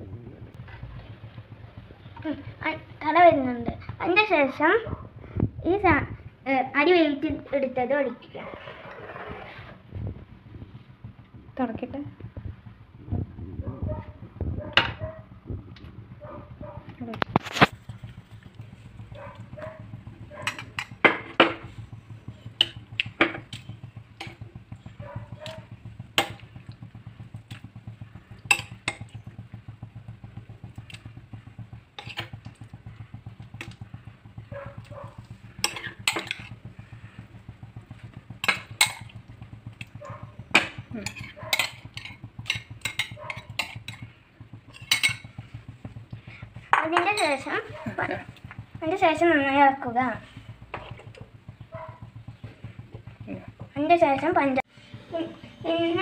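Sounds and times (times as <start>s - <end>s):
steady low hum: 0.0s - 56.0s
spatula knocking against a pan: 19.0s - 49.0s.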